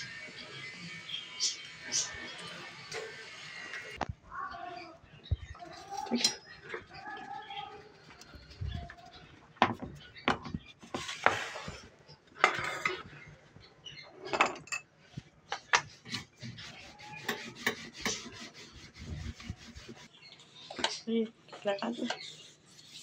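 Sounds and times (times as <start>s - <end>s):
dough rubbing and scraping: 10.8s - 12.0s, 15.9s - 20.4s, 22.0s - 23.0s
rolling pin rolling dough: 16.0s - 20.2s.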